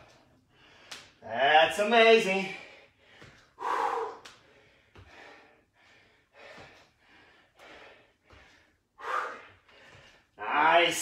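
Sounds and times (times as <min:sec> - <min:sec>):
man breathing hard: 0:00.0 - 0:01.2, 0:02.3 - 0:10.4.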